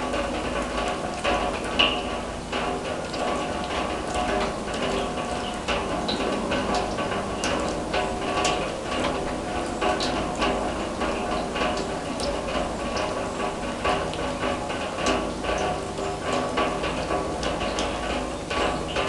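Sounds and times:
raindrops pinging on steel drum: 0:00.0 - 0:19.0.

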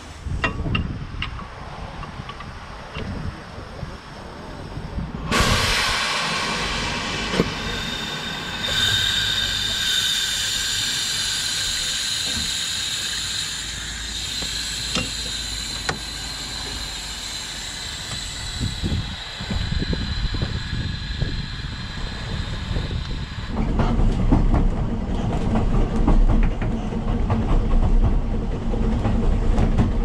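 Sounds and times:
steam locomotive hissing: 0:00.0 - 0:30.0.

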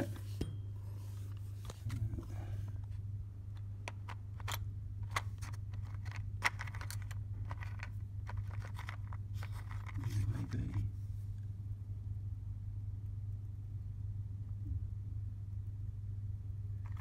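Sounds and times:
steady low hum: 0:00.0 - 0:17.0
small rubber parts clicking and rattling: 0:03.8 - 0:10.8, 0:16.8 - 0:17.0.

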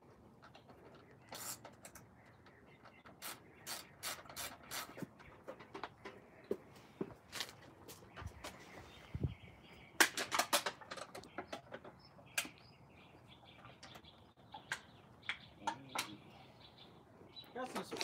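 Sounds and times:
small screws and tool clicking: 0:00.4 - 0:05.0.

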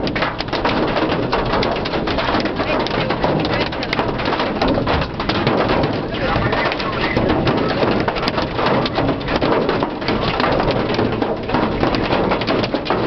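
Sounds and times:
hail clattering on car roof: 0:00.0 - 0:13.0
heavy rain: 0:00.0 - 0:13.0.

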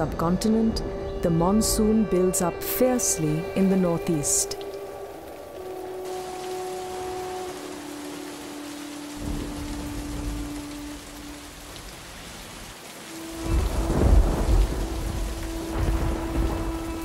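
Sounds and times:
heavy rain on water and leaves: 0:03.1 - 0:17.0
thunder rumbling: 0:06.0 - 0:17.0.

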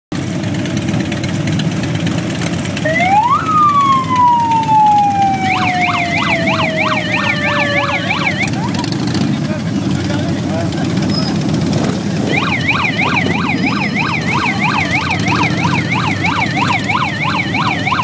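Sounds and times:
motorcycles idling: 0:00.2 - 0:18.0
siren wail: 0:02.8 - 0:09.0, 0:12.1 - 0:18.0
siren yelp: 0:02.8 - 0:09.0, 0:12.1 - 0:18.0.

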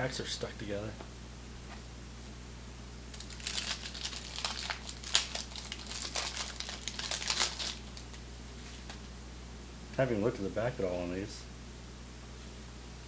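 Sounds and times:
wax-paper wrapper crinkling: 0:03.1 - 0:09.1.

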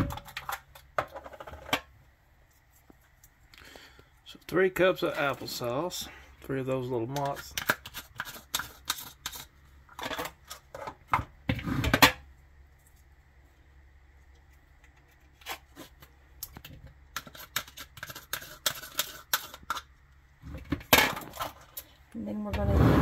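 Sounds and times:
spoon scraping plastic cups: 0:07.1 - 0:12.2, 0:14.4 - 0:22.8.

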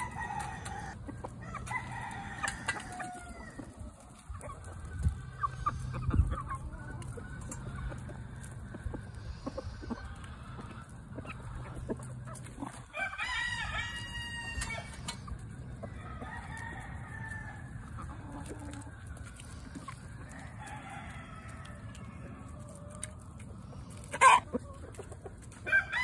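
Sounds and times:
rooster crowing: 0:00.0 - 0:03.7, 0:12.9 - 0:14.9, 0:25.7 - 0:26.0
chickens clucking: 0:00.0 - 0:26.0.

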